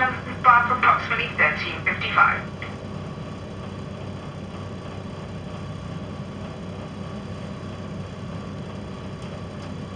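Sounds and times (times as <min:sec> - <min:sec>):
train diesel engine hum: 0:00.0 - 0:09.9.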